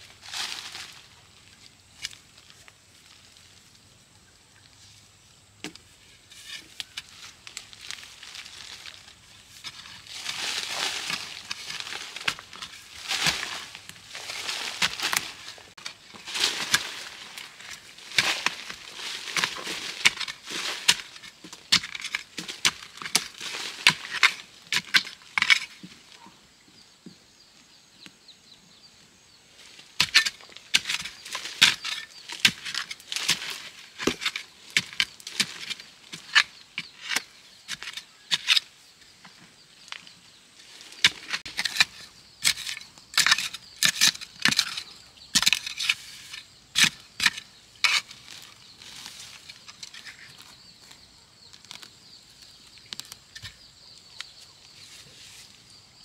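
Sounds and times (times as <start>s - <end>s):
dirt crunching and falling: 5.5s - 26.0s, 29.7s - 54.4s
digging tool striking soil: 5.6s - 25.9s, 30.0s - 38.7s, 41.0s - 50.5s.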